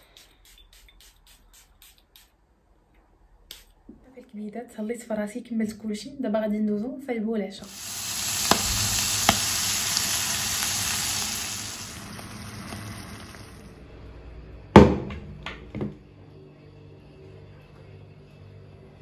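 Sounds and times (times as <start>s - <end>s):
food sizzling in frying pan: 7.6s - 13.7s.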